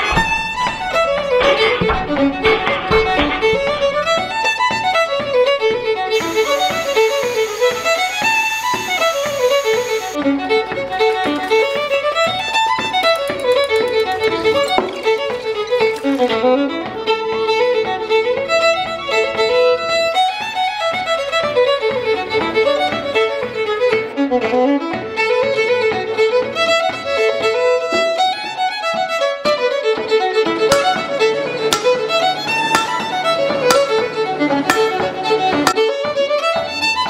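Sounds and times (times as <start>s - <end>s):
fiddle playing lively tune: 0.0s - 37.0s
sharp taps: 32.8s - 33.0s.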